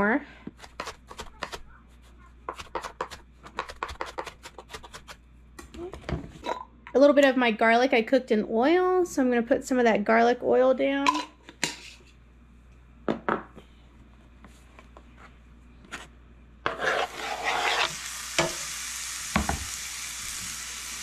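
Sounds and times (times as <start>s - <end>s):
frying pan sizzling: 16.7s - 21.0s.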